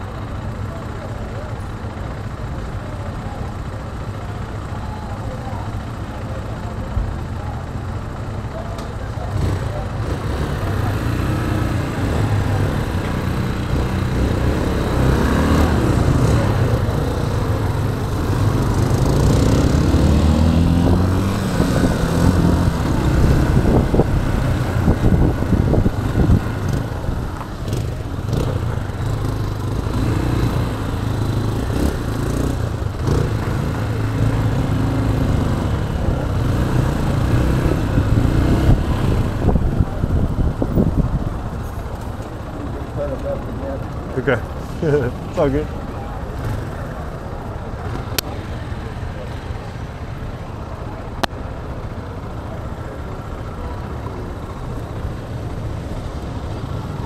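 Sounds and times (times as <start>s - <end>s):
motorcycle engine: 0.0s - 57.0s.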